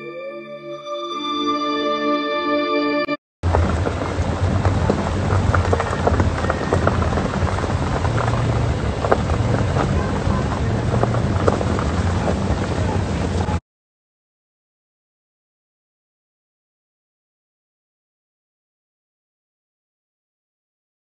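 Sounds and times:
car road rumble: 3.4 - 13.6
gravel popping under tyres: 3.4 - 13.6.

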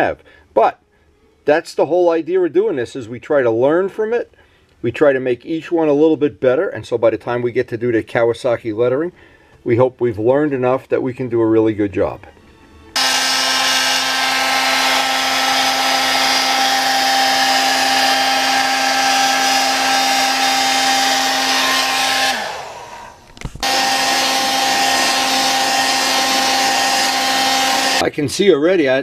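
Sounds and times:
heat gun fan blowing: 12.9 - 28.1.

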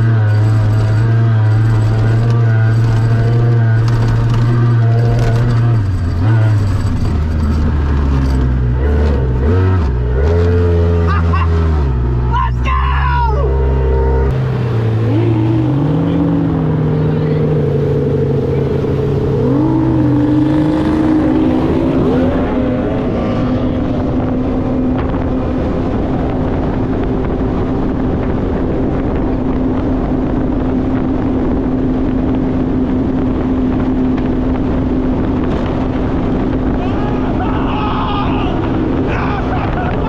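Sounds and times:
outboard boat engine running hard: 13.4 - 40.0.

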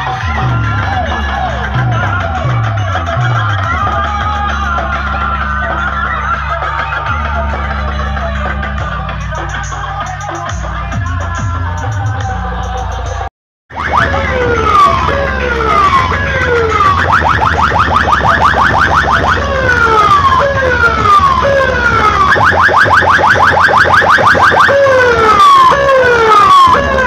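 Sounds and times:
electronic siren wailing: 13.7 - 27.0.

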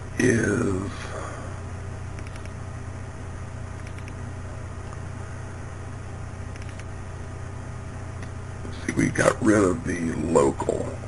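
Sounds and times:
low background hum: 0.0 - 11.0
computer mouse clicks: 2.2 - 2.6, 3.8 - 4.2, 6.5 - 6.9.

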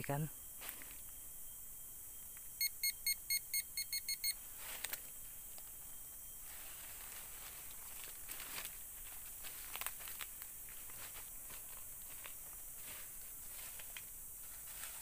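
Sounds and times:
footsteps on dry leaves: 0.6 - 1.0, 4.5 - 5.1, 6.4 - 15.0
metal detector beeping: 2.6 - 4.4.

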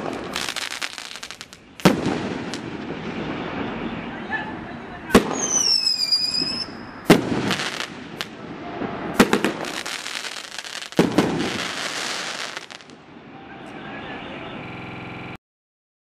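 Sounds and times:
fireworks cracks: 0.0 - 4.1, 5.1 - 13.8
fireworks crackling: 0.0 - 13.8
fireworks bangs: 0.0 - 14.2.

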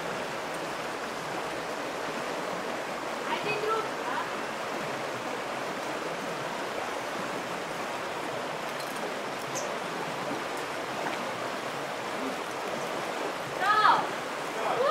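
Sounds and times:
stream rushing: 0.0 - 14.9.

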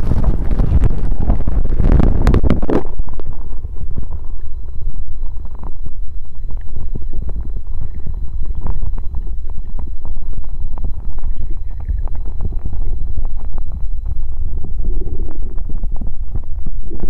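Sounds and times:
low rumble of moving water: 0.0 - 17.0
soft underwater clicks and pops: 5.3 - 14.2.

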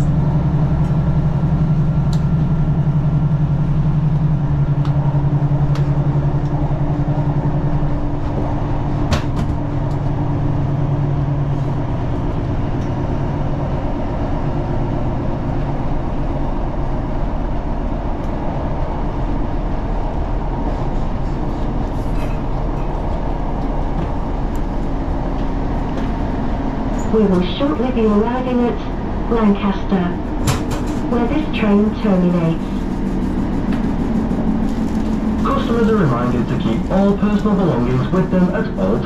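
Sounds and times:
diesel engine low hum: 0.0 - 39.0
train running noise: 0.0 - 39.0.

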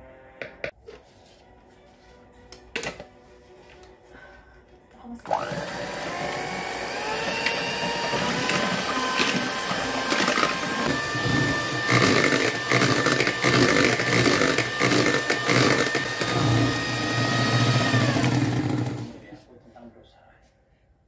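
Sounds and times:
electric hand mixer whining: 5.3 - 19.3.

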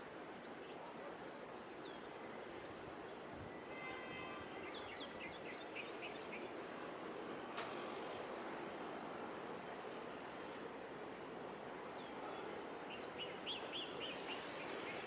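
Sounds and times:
outdoor background noise: 0.0 - 15.0
small birds chirping: 0.3 - 3.3, 4.6 - 6.6, 11.9 - 15.0.

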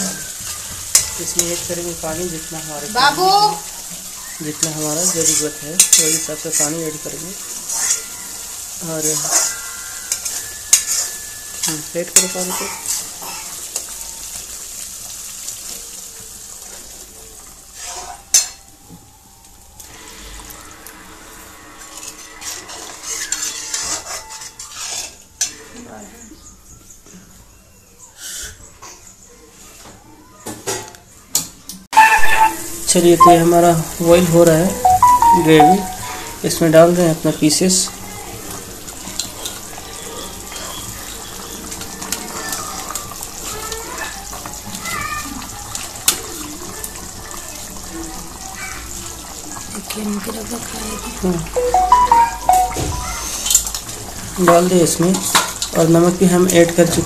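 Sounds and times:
water hissing in hot oil: 0.0 - 25.2, 36.4 - 51.5
gravy boiling: 0.0 - 26.5, 32.9 - 51.6
ladle stirring and scraping pan: 4.5 - 8.2, 9.0 - 13.1, 21.8 - 25.8.

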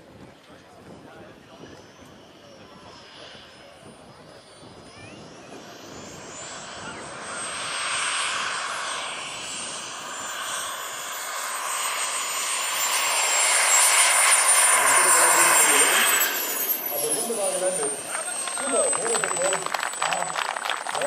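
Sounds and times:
model jet turbine whine: 0.0 - 21.0
rushing jet noise: 4.3 - 21.0.

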